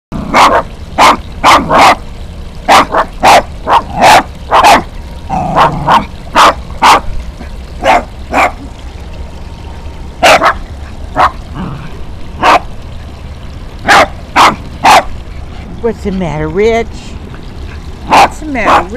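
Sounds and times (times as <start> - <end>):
small dog barking: 0.3 - 2.0, 2.7 - 4.9, 5.5 - 7.0, 7.8 - 8.6, 10.2 - 10.6, 12.4 - 12.6, 13.8 - 15.1, 18.1 - 18.9.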